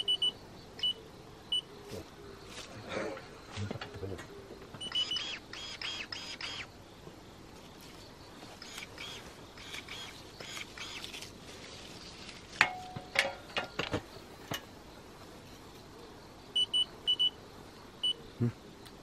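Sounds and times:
short high electronic beeps: 4.8 - 6.6
electric pruning shears clicking: 8.6 - 11.3.

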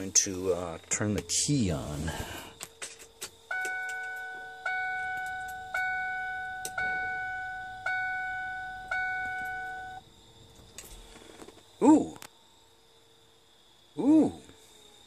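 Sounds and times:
dashboard warning chime: 3.5 - 10.0.

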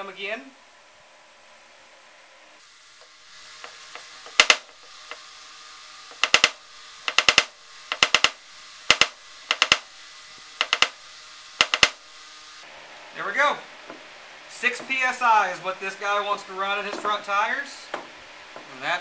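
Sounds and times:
sharp clicks: 3.6 - 5.2, 6.1 - 9.8, 10.6 - 11.0, 11.6 - 12.0.

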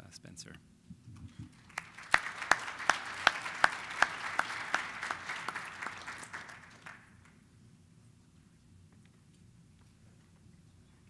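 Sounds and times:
close hand claps: 1.4 - 7.4
audience applauding: 1.5 - 7.4.

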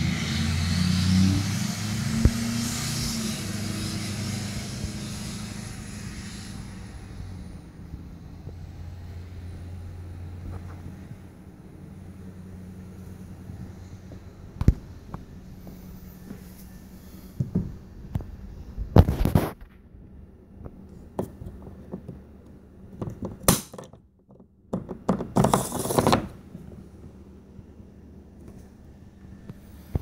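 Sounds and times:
low steady hum: 1.7 - 30.0
knocks and clicks on plastic: 23.0 - 26.3
rubbing on plastic hull: 24.3 - 27.2.

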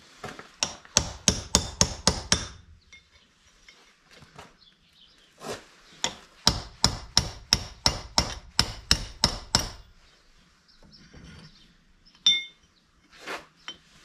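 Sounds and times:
hammer striking chisel on metal: 0.6 - 3.2, 6.0 - 9.9.

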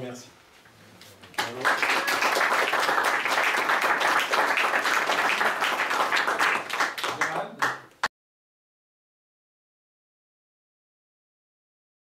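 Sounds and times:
audience applauding: 1.4 - 7.9.

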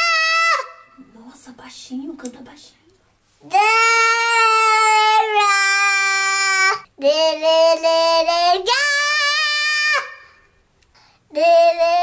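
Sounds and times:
boy singing long notes: 3.5 - 10.4, 11.3 - 12.0.

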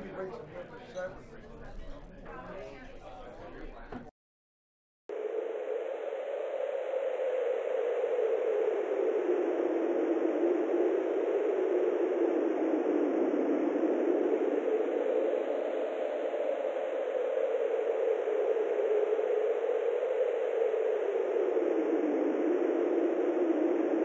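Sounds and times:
steady rushing noise: 5.1 - 24.0.

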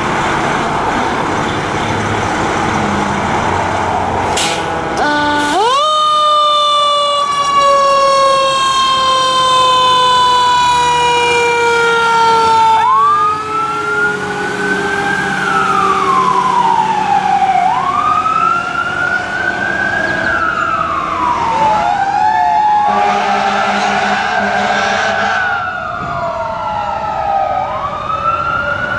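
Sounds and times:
truck engine running: 0.0 - 7.6
fire truck siren wailing: 0.0 - 28.9.

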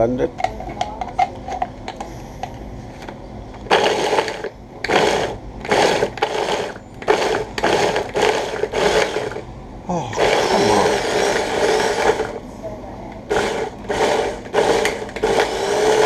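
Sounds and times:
electric chopper whirring: 3.7 - 9.4, 10.1 - 12.4, 13.2 - 16.0.

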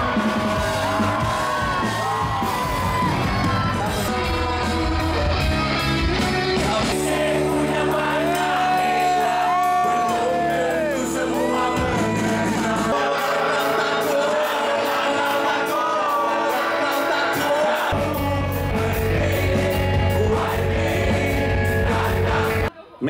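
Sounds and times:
drums steady beat: 0.0 - 12.9
heavy bass: 0.0 - 13.1, 17.9 - 22.7
live rock band playing: 0.0 - 22.7
person singing: 2.9 - 22.7.

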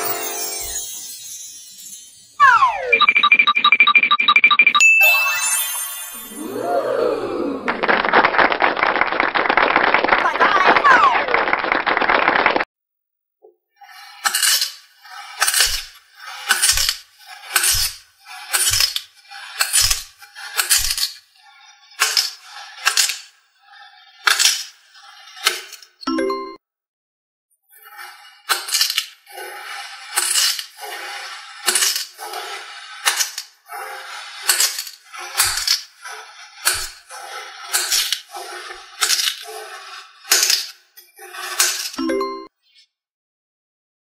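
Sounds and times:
brief ringing tone: 2.4 - 6.4.

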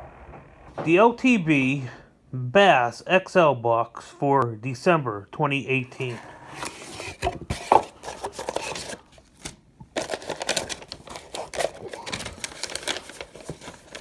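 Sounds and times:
packaging rustling and crinkling: 6.0 - 14.0.

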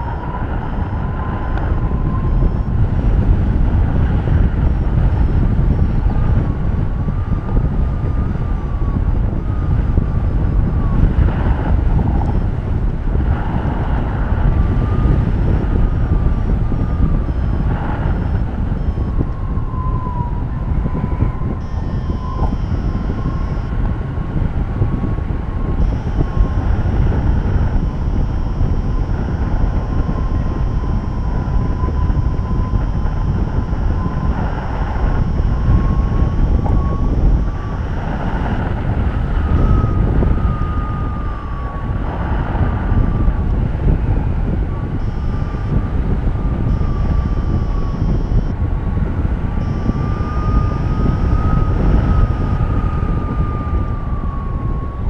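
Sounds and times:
wind buffeting microphone: 0.0 - 55.0
thin high tone: 21.0 - 23.8.

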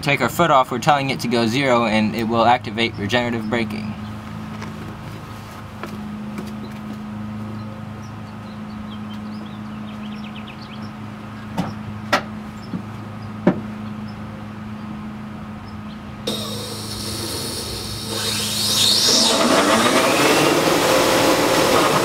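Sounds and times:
electric motor humming: 16.3 - 22.0.

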